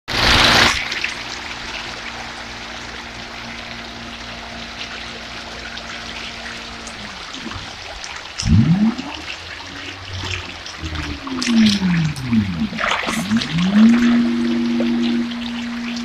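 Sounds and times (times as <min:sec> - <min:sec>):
faint steady hum: 0:00.1 - 0:16.0
fish splashing and churning water: 0:00.1 - 0:16.0
loud low pitch-sliding sound: 0:09.8 - 0:16.0.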